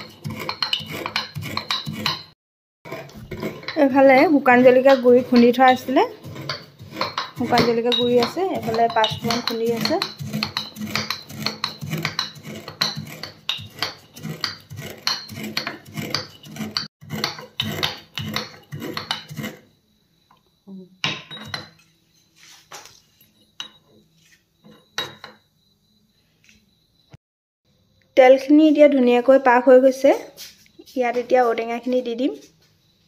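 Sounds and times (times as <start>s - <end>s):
metal pestle pounding in mortar: 0.0s - 2.4s, 3.0s - 19.5s.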